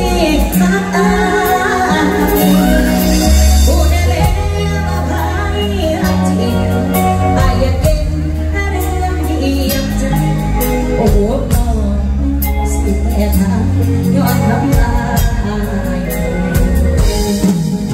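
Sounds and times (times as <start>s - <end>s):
heavy bass line: 0.0s - 17.9s
live band: 0.0s - 17.9s
woman singing into a microphone: 0.0s - 17.9s
steady drum beat: 14.7s - 17.9s.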